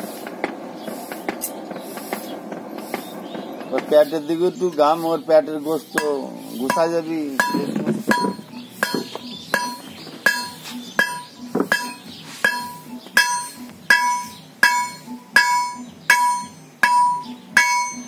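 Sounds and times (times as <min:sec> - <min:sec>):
hammer ringing on anvil: 0:06.0 - 0:18.0.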